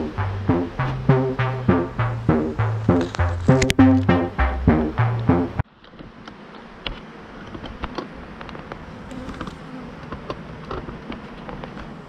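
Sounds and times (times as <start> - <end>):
bee swarm buzzing: 8.2 - 10.2.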